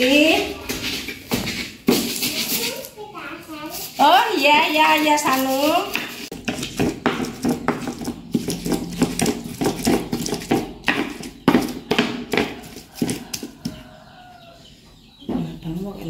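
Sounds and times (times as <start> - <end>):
stone pestle grinding in mortar: 5.0 - 13.8.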